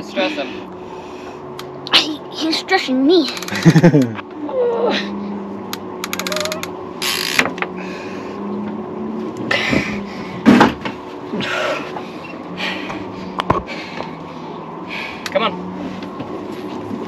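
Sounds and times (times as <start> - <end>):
low hum: 0.0 - 17.0
fishing reel gears whirring: 3.2 - 3.9, 5.7 - 7.9
fishing reel clicks: 3.3 - 3.7, 6.0 - 7.5.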